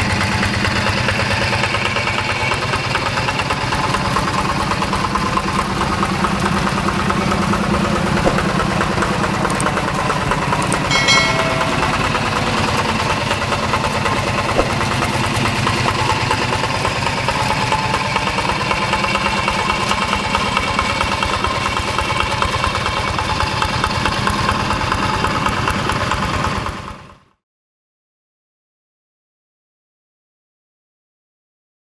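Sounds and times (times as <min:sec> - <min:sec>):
diesel tractor engine chugging: 0:00.0 - 0:27.3
short high-pitched tone: 0:10.9 - 0:12.8.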